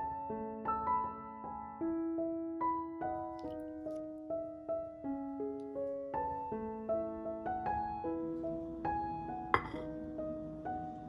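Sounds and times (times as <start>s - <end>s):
piano melody: 0.0s - 11.0s.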